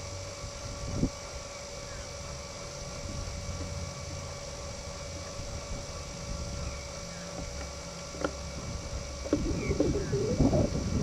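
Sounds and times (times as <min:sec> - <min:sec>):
faint hum: 0:00.0 - 0:11.0
low rumble: 0:08.6 - 0:11.0
faint chirps: 0:09.2 - 0:10.7.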